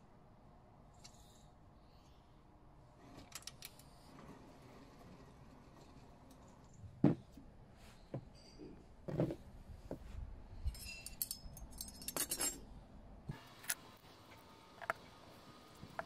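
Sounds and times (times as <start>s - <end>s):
metallic clinking and jingling: 10.6s - 12.6s.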